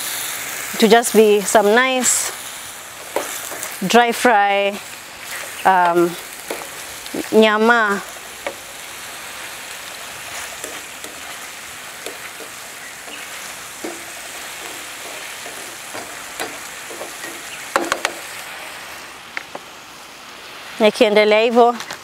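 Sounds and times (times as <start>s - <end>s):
meat and onions sizzling: 0.0s - 22.0s
spatula scraping pan: 3.0s - 4.0s, 10.2s - 18.4s.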